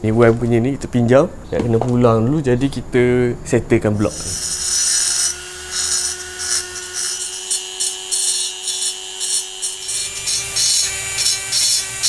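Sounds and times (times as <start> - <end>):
bit scraping metal: 3.8 - 11.4
rotary grinder whine: 4.0 - 12.0.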